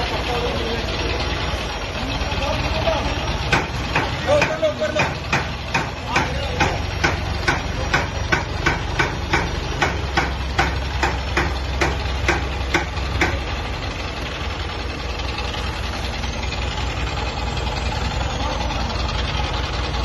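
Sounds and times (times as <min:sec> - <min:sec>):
diesel engine running: 0:00.0 - 0:20.0
sharp regular clicks: 0:03.4 - 0:13.6.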